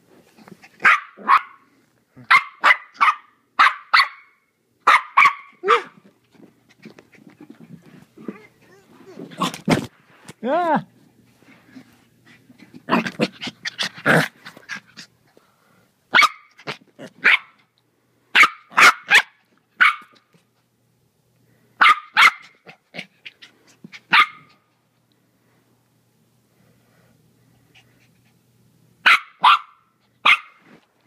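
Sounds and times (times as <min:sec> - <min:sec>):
puppy yapping: 0:04.9 - 0:06.0, 0:24.1 - 0:24.5, 0:29.0 - 0:30.6.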